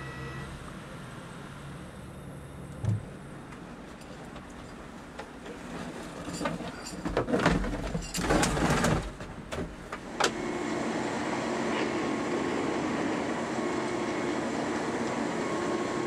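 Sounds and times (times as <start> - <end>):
held machine tones: 0.0 - 0.5
track machine humming: 0.0 - 3.8.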